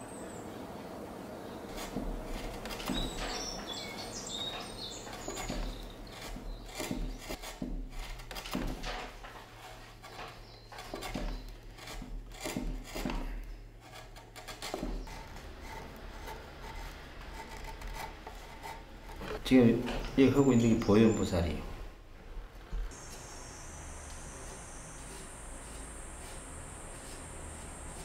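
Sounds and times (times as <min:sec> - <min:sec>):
birds chirping: 0:00.0 - 0:07.4, 0:09.8 - 0:11.6, 0:19.3 - 0:21.9, 0:22.9 - 0:28.0
chisel paring wood: 0:01.6 - 0:20.2.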